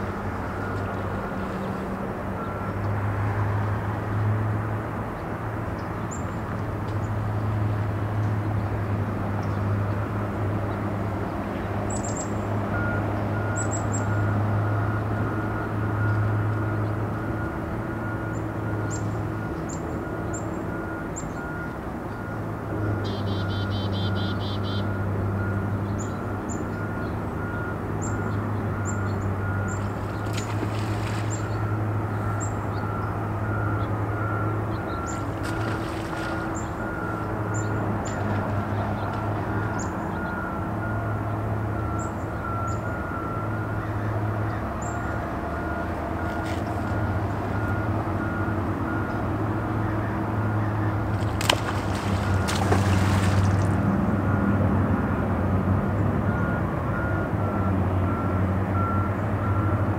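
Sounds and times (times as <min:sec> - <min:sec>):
low traffic rumble: 0:00.0 - 0:59.9
fish splashing in water: 0:29.7 - 0:31.9, 0:35.1 - 0:37.5, 0:50.9 - 0:54.0
reversing beeper: 0:56.3 - 0:59.9.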